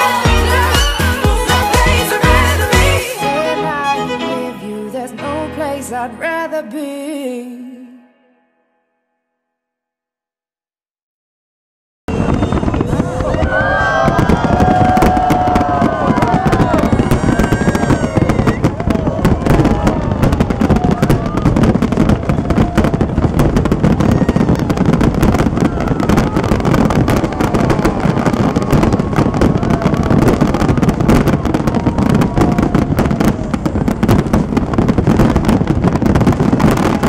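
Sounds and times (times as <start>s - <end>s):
fireworks bangs and crackling: 0.0s - 3.2s, 12.1s - 37.0s.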